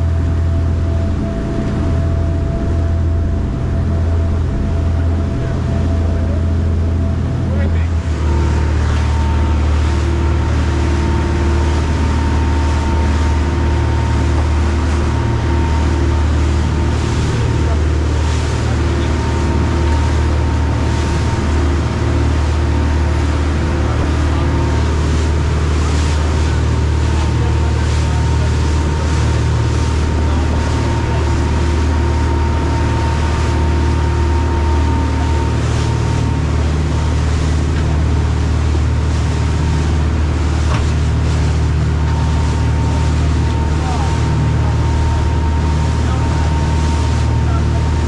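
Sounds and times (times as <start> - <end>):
boat engines droning: 0.0 - 48.0
rush of churning wake: 0.0 - 48.0
thin steady whine: 0.0 - 48.0.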